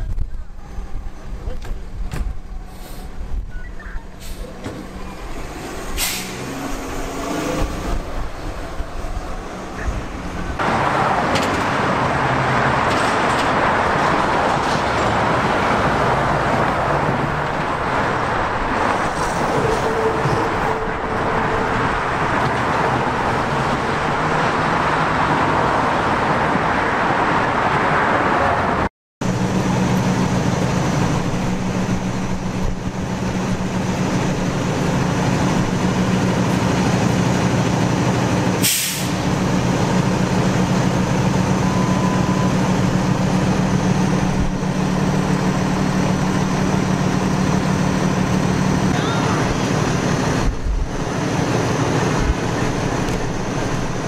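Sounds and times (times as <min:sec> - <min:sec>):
heavy traffic rushing: 0:00.0 - 0:54.0
diesel engine idling: 0:29.2 - 0:54.0.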